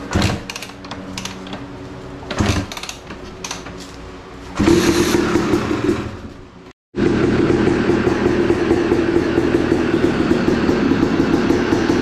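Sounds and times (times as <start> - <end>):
dirt bike engine running loudly: 7.0 - 12.0.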